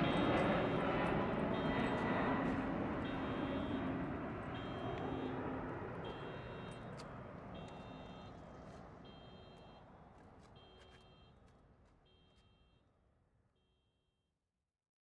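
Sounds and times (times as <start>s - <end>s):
jet airliner engine: 0.0s - 10.1s.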